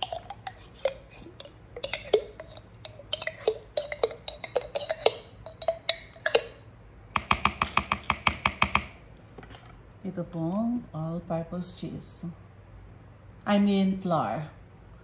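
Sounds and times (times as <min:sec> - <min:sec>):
metal spoon scraping glass jar: 0:00.0 - 0:06.6
rapid sharp taps: 0:07.2 - 0:09.0.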